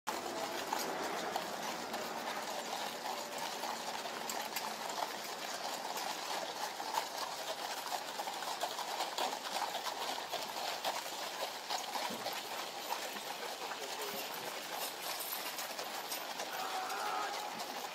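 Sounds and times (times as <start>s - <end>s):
background murmur: 0.1s - 7.4s, 12.5s - 17.9s
hooves clip-clopping on gravel: 0.1s - 17.9s.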